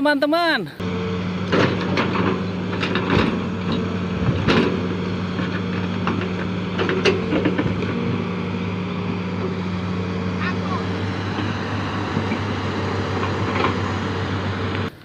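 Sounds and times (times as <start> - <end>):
diesel excavator engine running: 0.7 - 15.0
machine knocks and clatters: 1.4 - 8.2.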